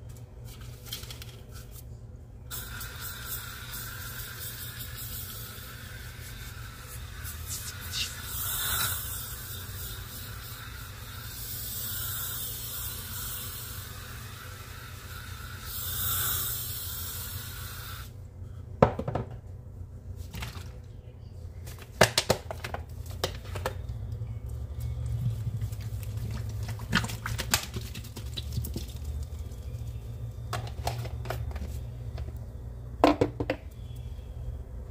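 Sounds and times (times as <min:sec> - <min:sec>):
powder shaken from a can: 0:02.5 - 0:16.8.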